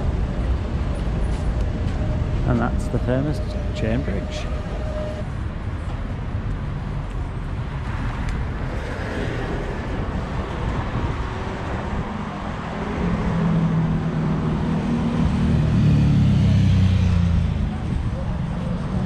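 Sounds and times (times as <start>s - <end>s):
rumble of passing cars: 0.0s - 19.0s
vehicle engine approaching: 10.9s - 19.0s.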